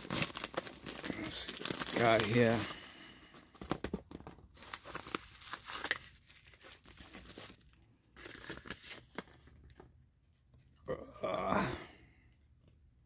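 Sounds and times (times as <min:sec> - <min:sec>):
bubble wrap crackling: 0:00.0 - 0:02.8, 0:03.4 - 0:09.2
plastic envelope rustling: 0:00.0 - 0:09.9.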